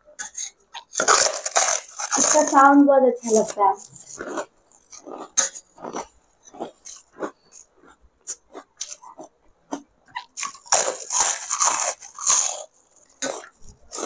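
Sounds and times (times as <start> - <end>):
crunching bites into crispy snack: 0.2 - 2.6, 8.3 - 14.0.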